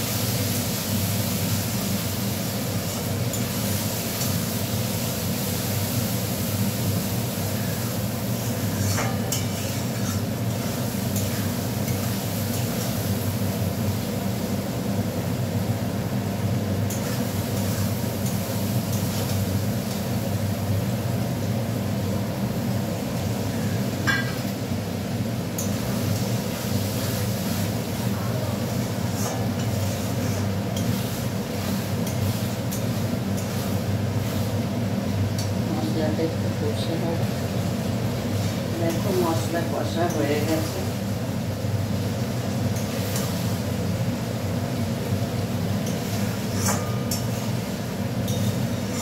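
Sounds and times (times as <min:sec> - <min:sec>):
metal spoon scraping a pan: 0:08.4 - 0:13.0, 0:29.1 - 0:31.2, 0:31.9 - 0:33.8, 0:45.8 - 0:47.6, 0:48.2 - 0:49.0.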